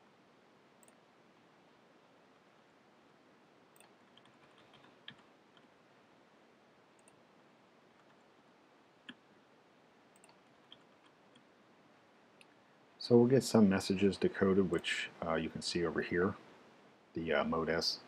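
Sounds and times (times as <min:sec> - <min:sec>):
computer mouse clicks: 0:00.8 - 0:01.0, 0:03.7 - 0:05.7, 0:07.0 - 0:07.2, 0:10.1 - 0:11.5.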